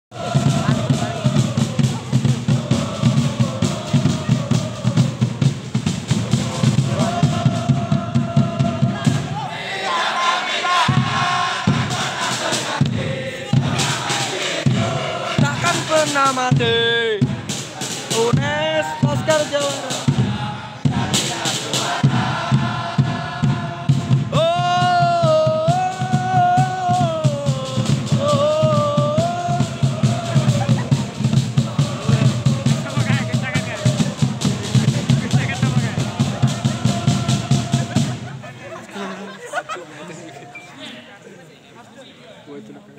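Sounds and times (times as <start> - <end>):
crowd chanting and singing: 0.0 - 41.6
bass drum beats: 0.1 - 9.5, 10.8 - 38.5
loud solo sung voice: 21.7 - 33.0, 36.0 - 38.4.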